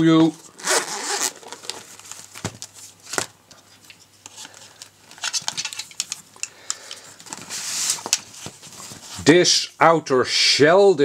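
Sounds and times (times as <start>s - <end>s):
zipper opening: 0.6s - 1.7s.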